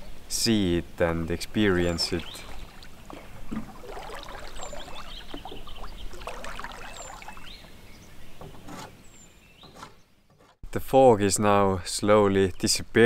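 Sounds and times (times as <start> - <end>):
paddle splashing in water: 1.8 - 8.9.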